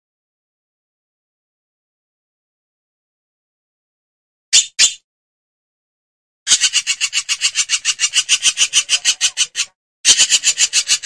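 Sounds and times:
hornbill harsh rasping calls: 6.5 - 11.0.

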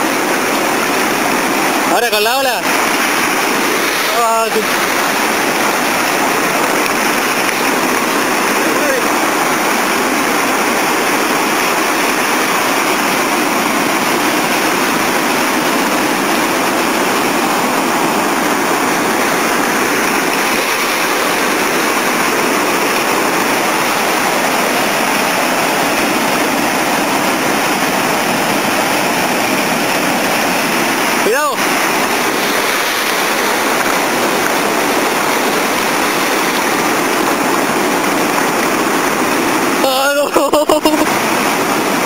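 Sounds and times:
sea surf rushing through rocks: 0.0 - 42.0.

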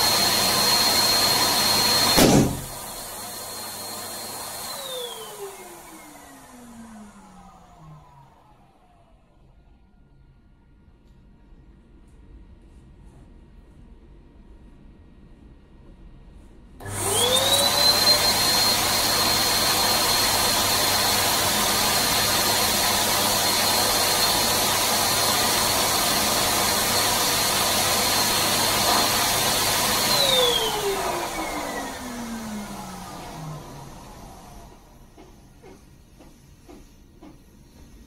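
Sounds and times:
electric balloon pump whining: 0.0 - 7.8, 16.8 - 35.8.

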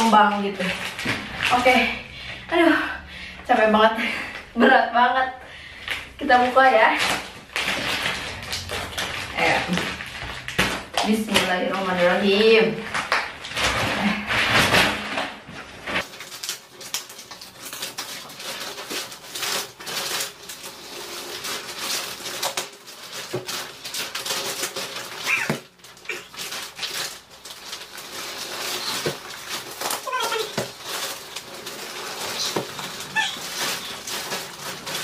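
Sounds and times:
plastic wrapping crackling: 0.0 - 2.8, 5.7 - 35.0.

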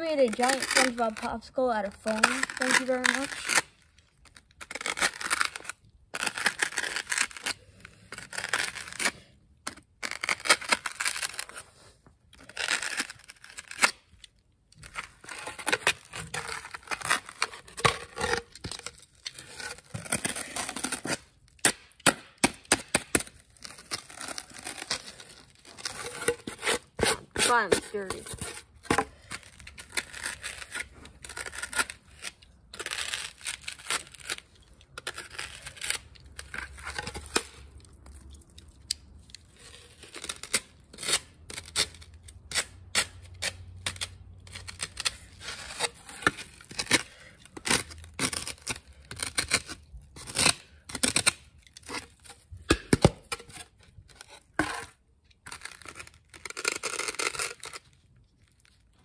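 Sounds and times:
foam being scraped by hand: 0.0 - 3.7.

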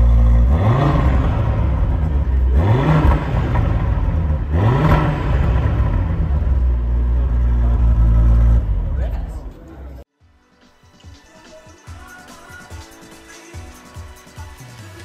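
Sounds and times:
car engine idling and revving: 0.0 - 10.1.

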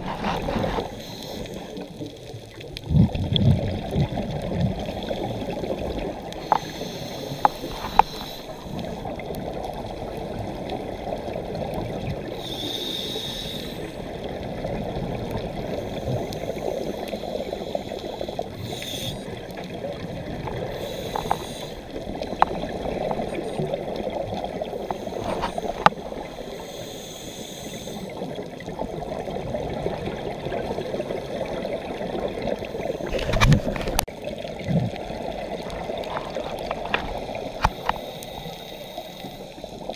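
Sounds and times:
breath hissing through regulator: 0.0 - 1.8, 6.4 - 9.1, 12.3 - 14.0, 15.6 - 19.4, 20.6 - 22.0, 24.7 - 28.4, 37.2 - 39.9
muffled underwater rush and bubbles: 0.0 - 39.9.

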